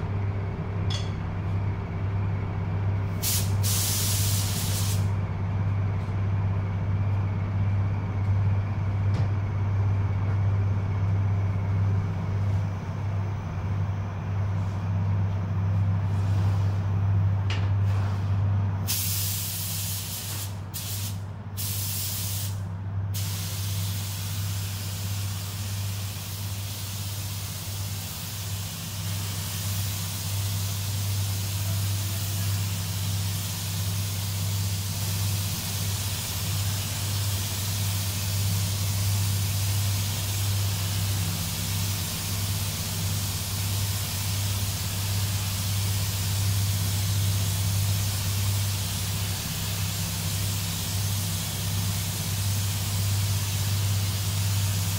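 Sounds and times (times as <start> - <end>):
fan hum: 0.0 - 54.9
paint spray gun hissing: 3.2 - 5.1, 18.9 - 22.6, 23.2 - 54.9.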